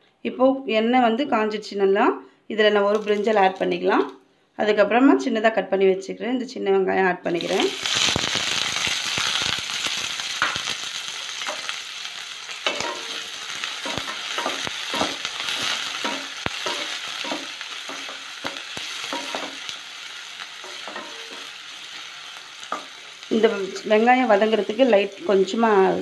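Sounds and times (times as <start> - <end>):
shallots sizzling in hot oil: 2.7 - 4.1, 7.3 - 26.0.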